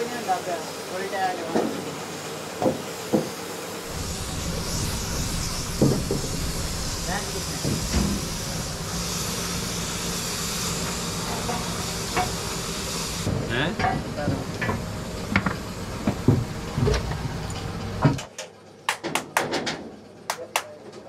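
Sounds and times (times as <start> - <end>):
spray gun hissing: 3.8 - 13.4
steady low hum: 3.8 - 18.2
knocks and clatter: 3.9 - 12.5.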